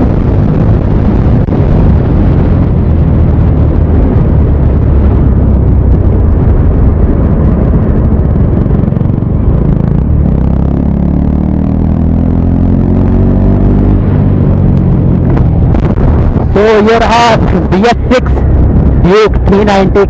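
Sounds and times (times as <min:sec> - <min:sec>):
motorcycle engine: 0:00.0 - 0:19.5
wind roaring over microphone: 0:00.0 - 0:20.0.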